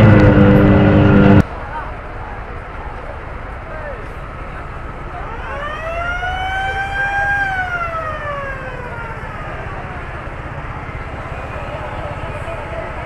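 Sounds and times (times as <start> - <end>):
fire engine siren wailing: 0.0 - 1.4, 5.1 - 12.7
steady low rumble: 0.0 - 1.6.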